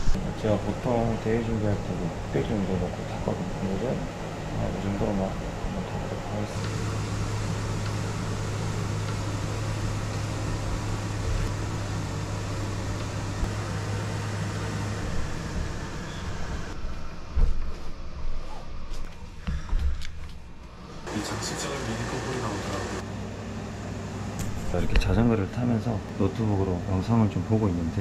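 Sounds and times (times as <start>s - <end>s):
exercise bike whirring hum: 0.0s - 28.0s.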